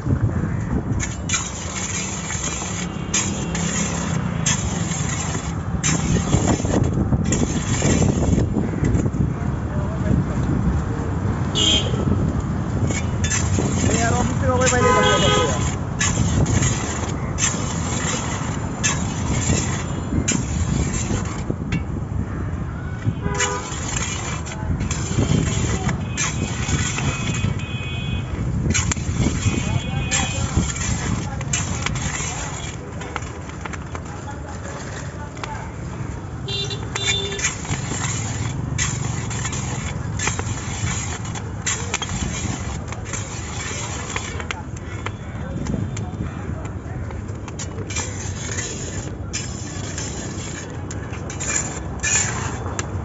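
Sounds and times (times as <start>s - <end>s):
street traffic noise: 0.0s - 53.0s
metal ladle scraping wok: 0.9s - 9.1s, 12.8s - 21.9s, 23.2s - 45.1s, 47.4s - 53.0s
vehicle horn: 11.5s - 12.1s, 14.7s - 15.7s, 23.0s - 23.7s, 27.0s - 28.3s, 36.4s - 37.4s.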